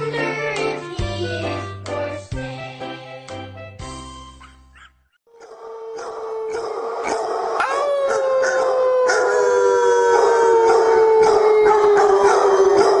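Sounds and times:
dog howling: 5.4s - 13.0s.

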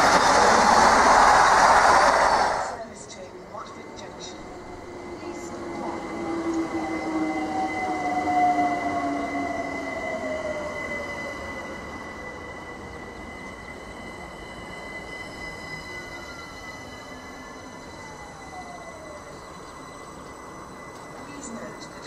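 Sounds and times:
electric train motor whine: 0.0s - 2.8s, 3.9s - 22.0s
high-pitched wheel and rail tone: 0.0s - 3.0s, 3.6s - 22.0s.

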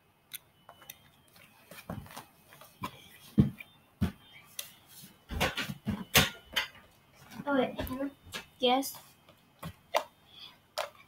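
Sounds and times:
knocks and thumps: 2.8s - 4.3s, 5.3s - 8.6s.

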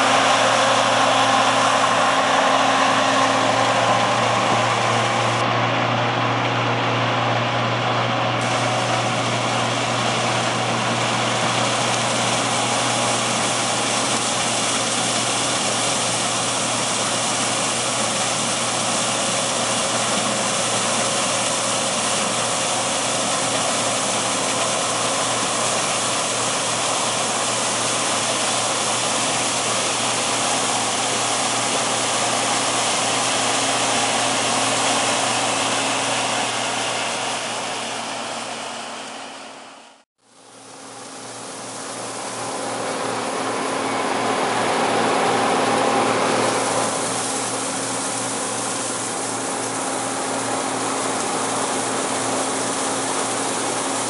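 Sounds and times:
combine harvester running: 0.0s - 54.0s.

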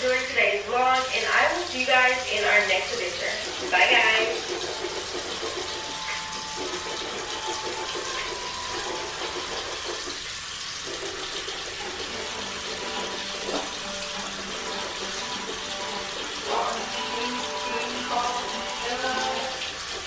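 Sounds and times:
water running: 0.0s - 20.0s.

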